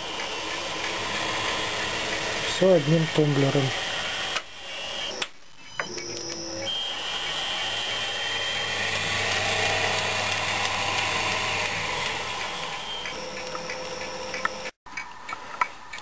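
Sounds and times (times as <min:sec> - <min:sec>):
lathe motor whining and humming: 0:00.0 - 0:14.8.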